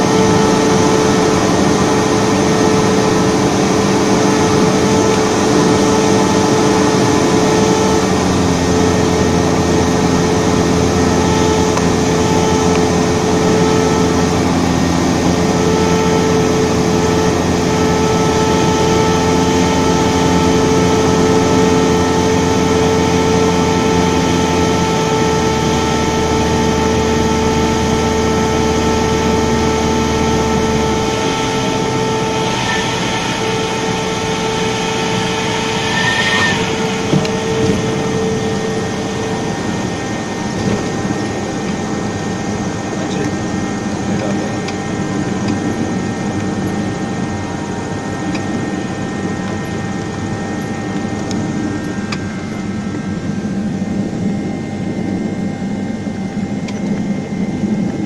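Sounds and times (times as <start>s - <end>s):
propeller plane engine drone: 0.0s - 58.0s
tyres chirping on runway: 34.8s - 37.3s.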